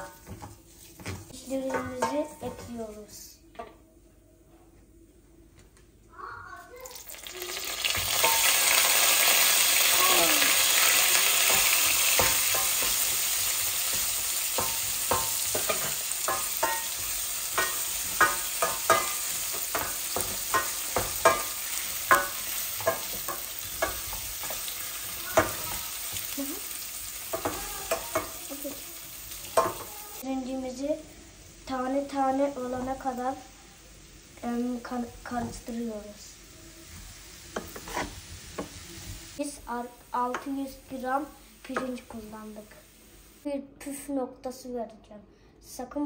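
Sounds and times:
rice sizzling in hot butter: 6.9s - 43.4s.

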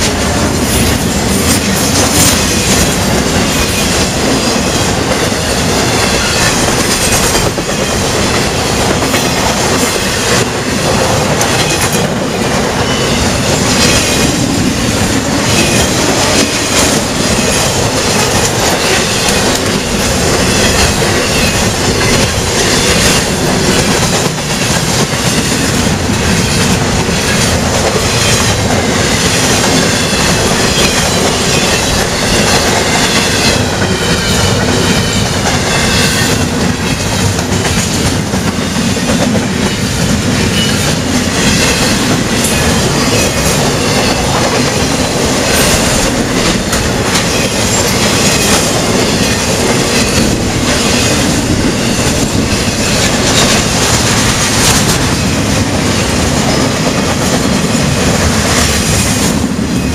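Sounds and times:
clacks over rail joints: 0.0s - 55.2s
train wheels rumbling on rail: 0.0s - 59.9s
high wheel squeal: 20.4s - 23.8s.

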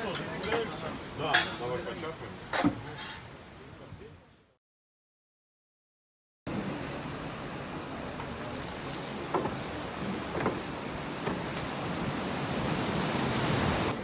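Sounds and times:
water lapping on rocky shore: 6.5s - 14.0s
wind rumbling on microphone: 6.5s - 14.0s.

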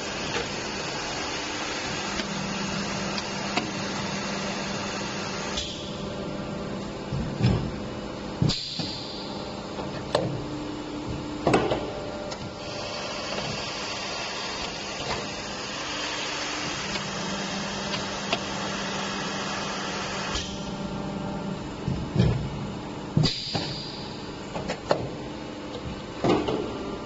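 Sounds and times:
machine humming: 0.0s - 27.0s
machine hissing: 12.5s - 20.7s.

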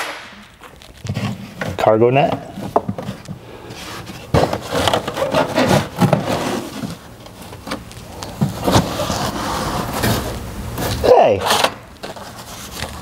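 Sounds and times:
rubbing and scraping: 0.5s - 2.0s, 2.6s - 7.4s, 8.4s - 13.0s
items knocking and clattering: 1.0s - 3.4s, 4.1s - 7.8s.

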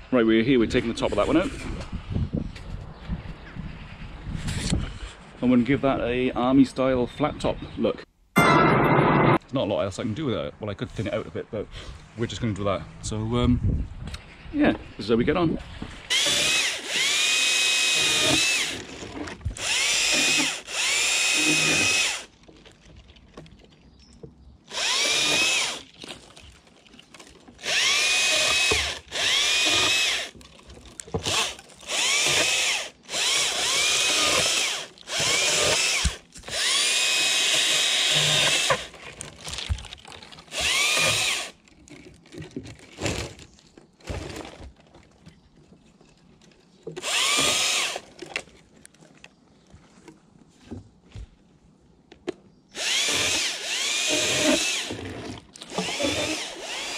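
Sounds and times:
chainsaw revving and cutting: 16.1s - 18.9s, 19.6s - 22.3s, 24.7s - 25.9s, 27.6s - 30.3s, 31.2s - 38.9s, 40.5s - 41.6s, 47.0s - 48.0s, 52.8s - 56.9s.

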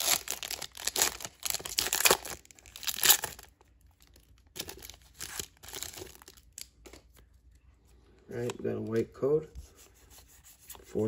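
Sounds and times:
foil wrapper crinkling and tearing: 0.0s - 7.0s
cards rustling from wrapper: 0.0s - 7.6s.

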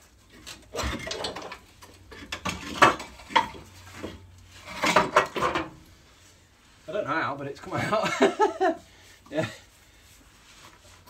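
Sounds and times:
metal clanks and scrapes: 0.2s - 6.0s.

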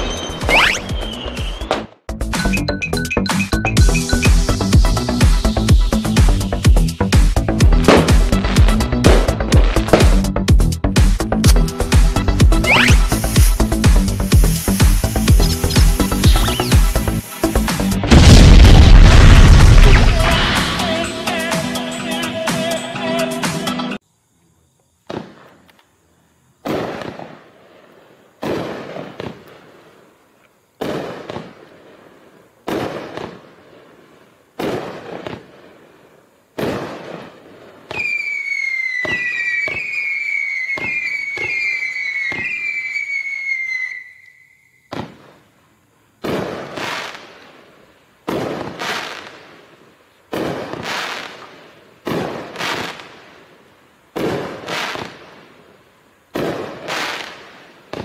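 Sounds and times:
fireworks shots: 0.0s - 2.0s, 7.1s - 10.3s, 12.5s - 21.1s, 25.0s - 25.7s, 26.6s - 30.1s, 30.8s - 44.1s, 44.8s - 45.5s, 46.2s - 55.7s, 56.3s - 58.0s
whistling fireworks: 0.0s - 10.3s, 12.2s - 23.6s, 25.1s - 25.8s, 26.6s - 58.0s.

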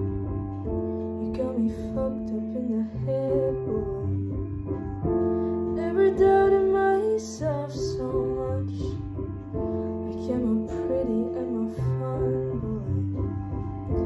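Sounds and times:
piano chords: 0.0s - 14.0s
woman singing pop ballad: 1.2s - 4.4s, 5.4s - 9.1s, 9.9s - 13.4s.

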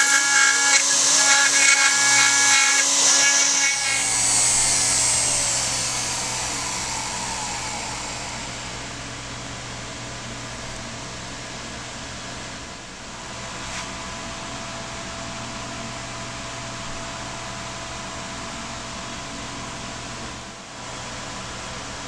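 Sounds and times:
router spindle hissing: 0.0s - 9.2s.

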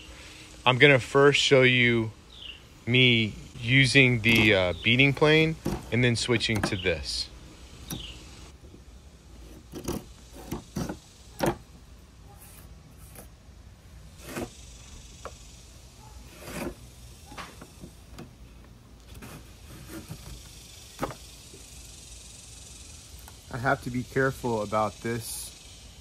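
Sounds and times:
hand plane scraping wood: 9.4s - 11.0s, 14.2s - 14.5s, 16.3s - 16.8s, 19.1s - 20.3s.

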